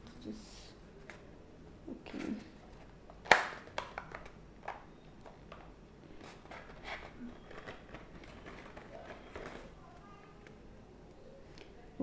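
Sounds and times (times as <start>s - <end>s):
paper rustling and crinkling: 6.1s - 9.8s.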